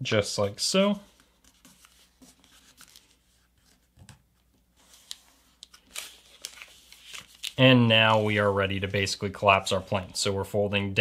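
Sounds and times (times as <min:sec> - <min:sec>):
paper rustling and crinkling: 0:01.0 - 0:04.2, 0:04.8 - 0:08.5.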